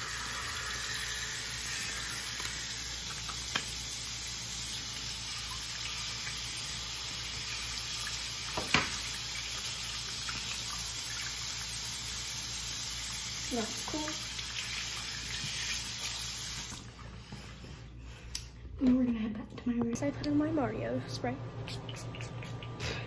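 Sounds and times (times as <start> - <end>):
tap running: 8.5 - 9.1.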